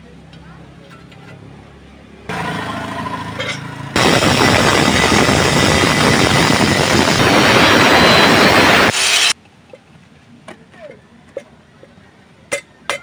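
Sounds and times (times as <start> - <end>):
angle grinder motor whine: 2.3 - 9.4
grinder disc cutting metal: 2.3 - 9.4.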